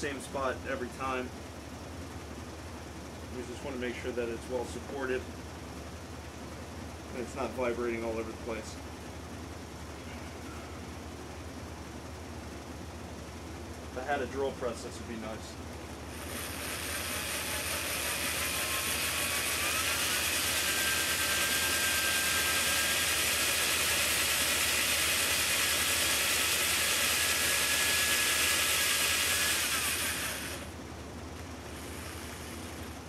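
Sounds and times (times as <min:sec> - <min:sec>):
electric drill whine: 0:16.0 - 0:30.8, 0:31.4 - 0:33.0.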